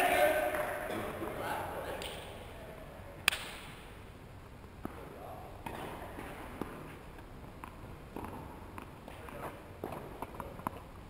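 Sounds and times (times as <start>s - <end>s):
racket hitting tennis ball: 4.8s - 7.0s.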